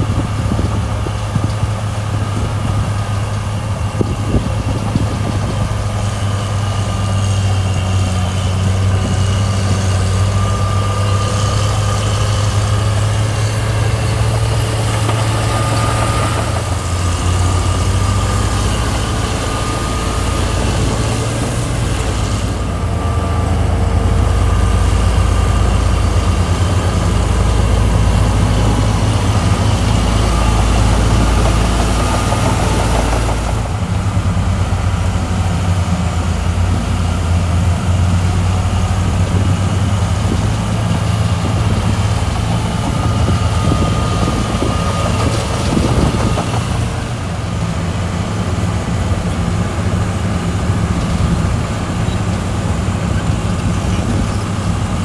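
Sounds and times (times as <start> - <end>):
heavy diesel engine running: 0.0 - 55.0.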